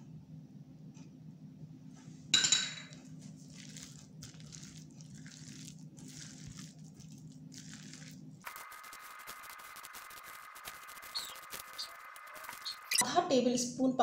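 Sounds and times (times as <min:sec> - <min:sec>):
low steady hum: 0:00.0 - 0:14.0
spoon clinking glass bowl: 0:02.4 - 0:03.0
spoon squelching through batter: 0:03.1 - 0:11.8.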